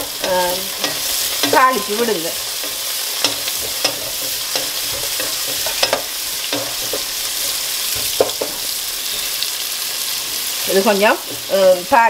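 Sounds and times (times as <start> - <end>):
wooden spatula knocking pot: 0.0 - 1.9, 2.6 - 8.7
vegetables sizzling in hot oil: 0.0 - 12.0.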